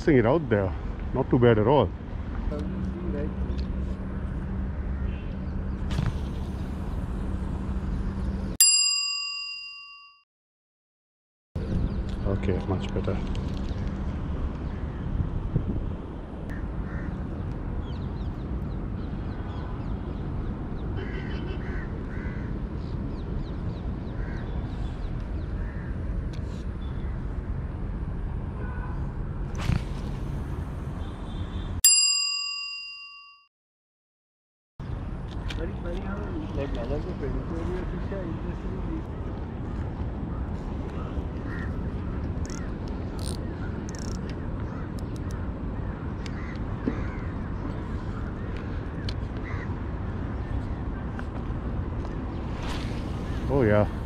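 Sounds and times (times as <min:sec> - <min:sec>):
outdoor background noise: 0:00.0 - 0:09.4, 0:11.6 - 0:32.6, 0:34.8 - 0:54.0
bell-like ding: 0:08.6 - 0:10.2, 0:31.9 - 0:33.5
brief whoosh: 0:52.4 - 0:54.0.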